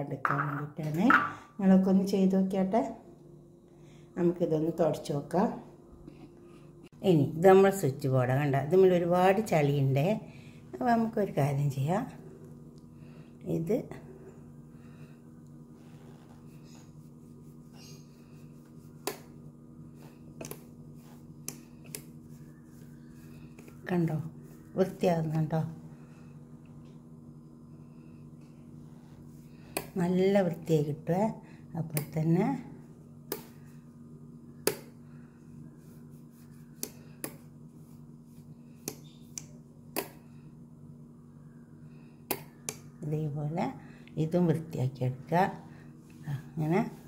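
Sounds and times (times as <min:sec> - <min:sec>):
steady low hum: 0:00.0 - 0:47.0
cloth wiping plastic: 0:15.7 - 0:19.1.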